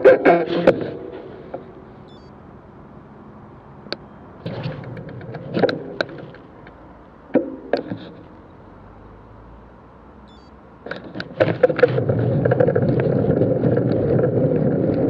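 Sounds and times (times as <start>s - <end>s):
car passing: 0.0s - 15.0s
steady low hum: 0.0s - 15.0s
sharp clicks and knocks: 3.9s - 8.3s, 10.3s - 15.0s.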